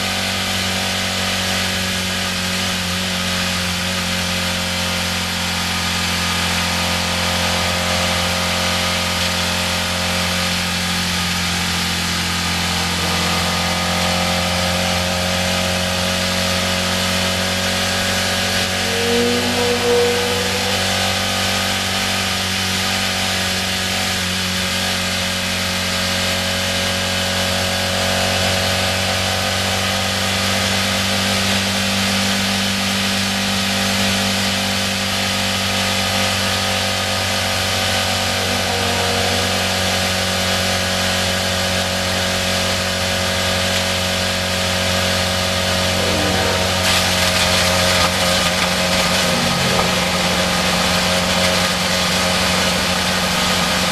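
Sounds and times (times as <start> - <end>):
racing car engine running: 0.0 - 53.9
wind and road noise: 28.6 - 53.9.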